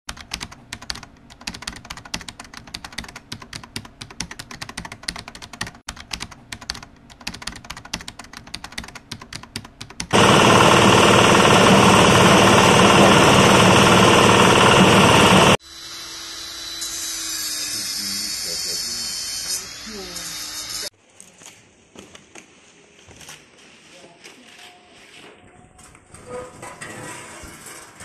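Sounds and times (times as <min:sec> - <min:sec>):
rapid irregular clicking: 0:00.1 - 0:10.5
engine-driven grinder running: 0:10.1 - 0:15.6.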